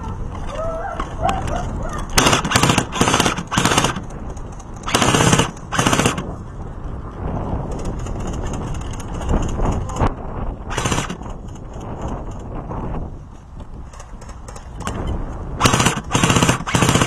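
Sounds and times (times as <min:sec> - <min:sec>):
airsoft gun automatic bursts: 0:02.1 - 0:04.2, 0:04.8 - 0:06.3, 0:10.7 - 0:11.4, 0:15.6 - 0:17.0.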